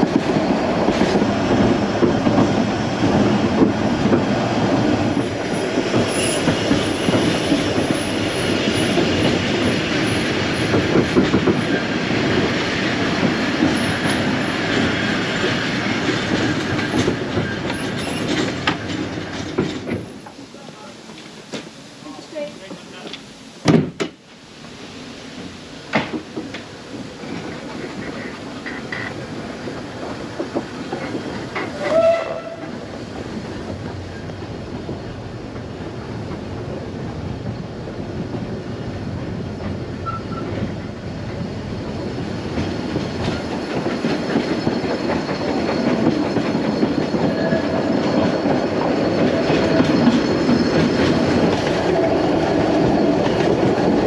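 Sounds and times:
train carriages clattering on track: 0.0 - 24.2, 25.3 - 54.0.

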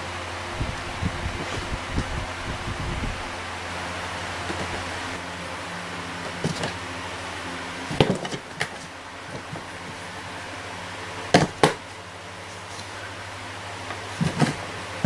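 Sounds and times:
steady low hum: 0.0 - 15.0
cats knocking cardboard box: 6.3 - 6.8, 7.9 - 9.7, 11.3 - 11.8, 14.2 - 14.6.

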